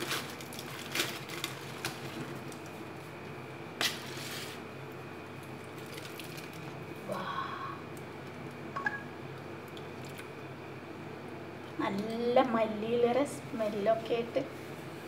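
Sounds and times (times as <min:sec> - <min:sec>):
aluminium foil crinkling: 0:00.0 - 0:03.0, 0:03.8 - 0:04.6, 0:05.3 - 0:06.9.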